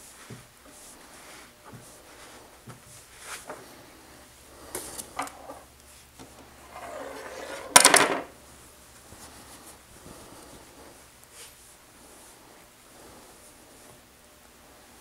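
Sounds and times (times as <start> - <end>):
fabric rustling and rubbing: 9.0 - 15.0.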